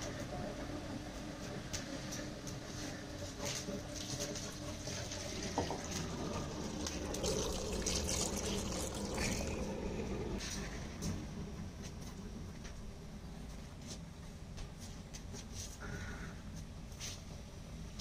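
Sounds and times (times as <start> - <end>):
water pouring into metal pan: 4.5 - 10.2.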